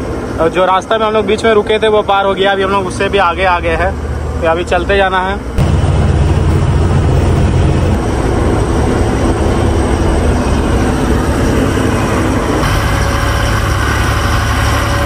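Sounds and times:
road and wind noise: 0.0 - 15.0
truck diesel engine under load: 0.0 - 15.0.

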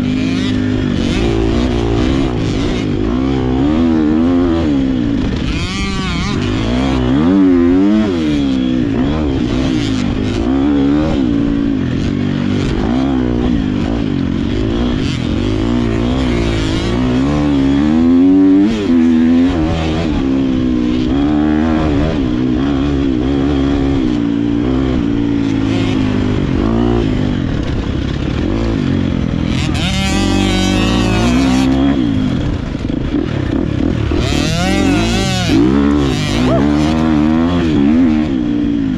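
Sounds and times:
dirt bike engine revving: 0.0 - 38.9.

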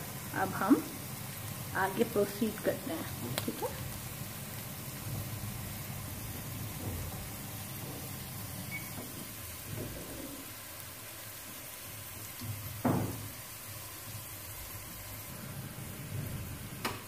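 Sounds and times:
onions sizzling in oil: 0.0 - 17.0.

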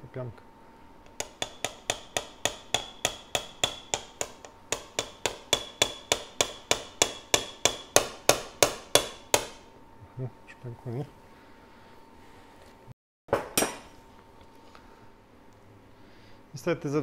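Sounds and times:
metal mallet tapping: 1.1 - 9.6.

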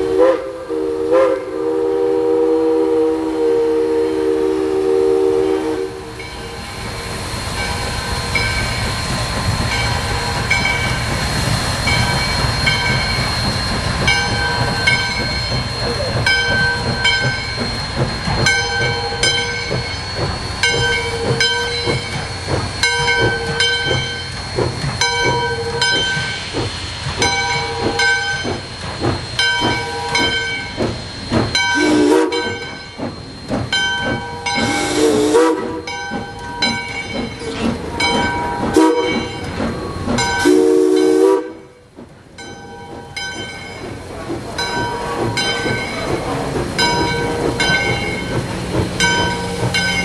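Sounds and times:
steam whistle toots: 0.0 - 6.8, 31.7 - 32.8, 34.3 - 36.0, 38.0 - 41.9
steam hissing: 0.0 - 50.0
locomotive bell ringing: 5.4 - 9.1, 9.7 - 26.6, 27.2 - 50.0.

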